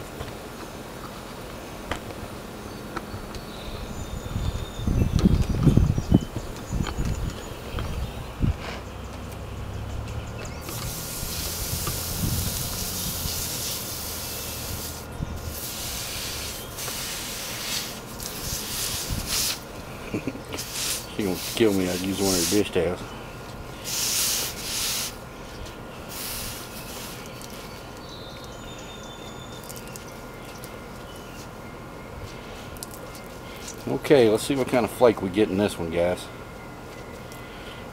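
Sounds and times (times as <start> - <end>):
background hum: 0.0 - 37.9
gas hissing from a pipe: 10.6 - 19.7, 20.5 - 22.8, 23.8 - 25.2, 26.1 - 27.3.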